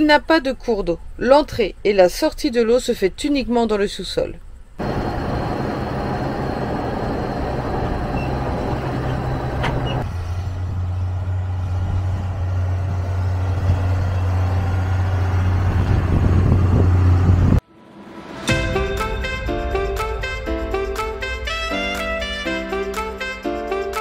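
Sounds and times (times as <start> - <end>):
truck engine running: 4.8 - 17.6.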